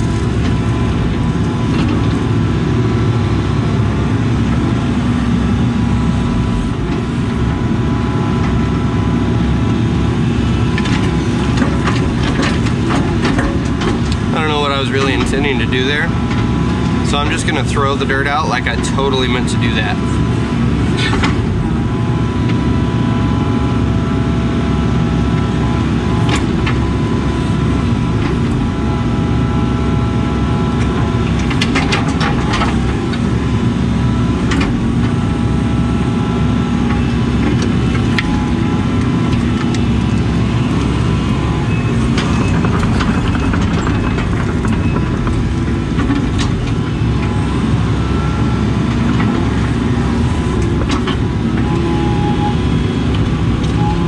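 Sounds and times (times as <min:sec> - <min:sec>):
excavator diesel engine running: 0:00.0 - 0:54.0
high hydraulic whine: 0:36.3 - 0:54.0.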